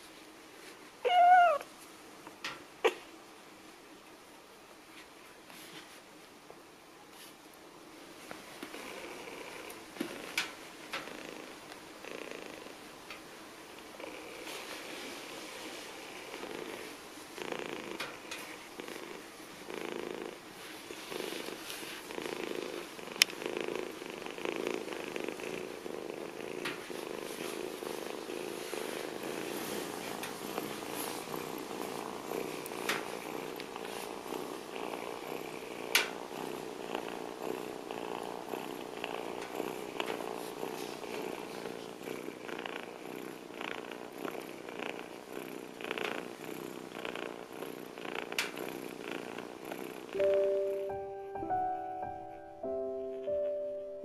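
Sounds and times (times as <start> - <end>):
kitten purring: 1.0 - 1.6, 8.4 - 51.2.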